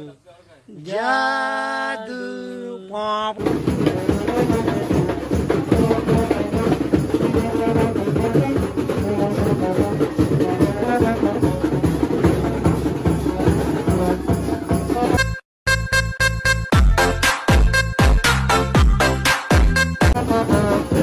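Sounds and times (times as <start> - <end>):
drums beaten in fast rhythm: 3.4 - 15.4, 16.7 - 21.0
brass horn melody: 3.4 - 21.0.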